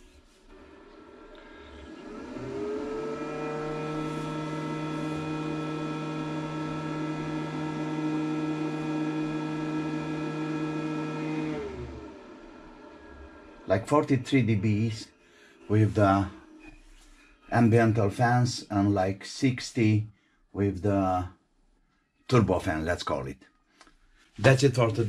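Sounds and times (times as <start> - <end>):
cooling fan whirring: 0.0 - 18.6.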